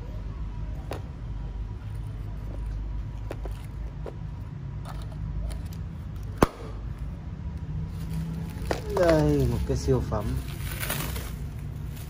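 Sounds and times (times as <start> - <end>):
clicks and rustles of tools: 1.9 - 6.4.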